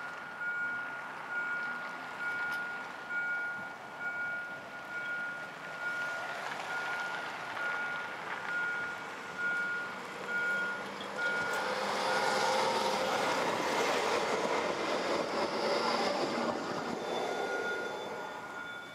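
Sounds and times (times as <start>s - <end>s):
tram passing with motor hum: 0.0s - 18.9s
short high beep: 17.0s - 18.9s.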